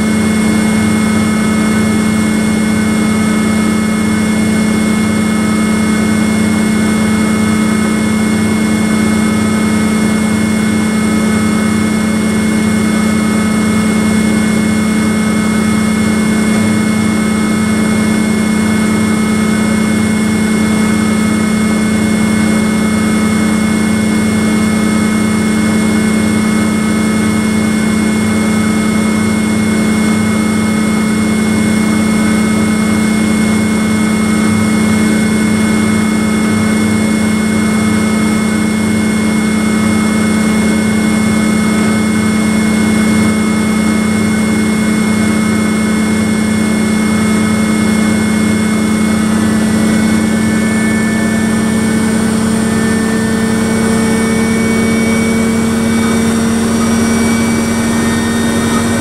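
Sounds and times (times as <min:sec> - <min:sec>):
washing machine spinning: 0:00.0 - 0:59.0.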